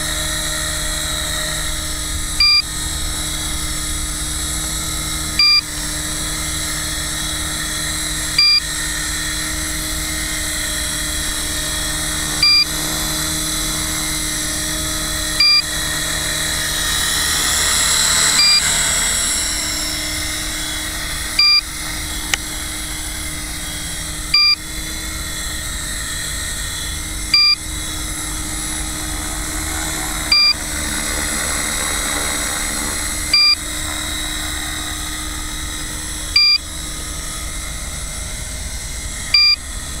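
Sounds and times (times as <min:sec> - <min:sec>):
toy helicopter motor whine: 0:00.0 - 0:40.0
short electronic beep: 0:33.3 - 0:33.6, 0:36.4 - 0:36.6, 0:39.4 - 0:39.6.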